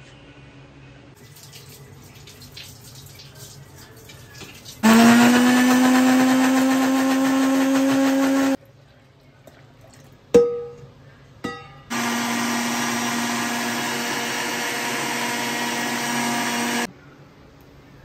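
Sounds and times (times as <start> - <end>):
electric blender running: 4.8 - 8.6, 11.9 - 16.9.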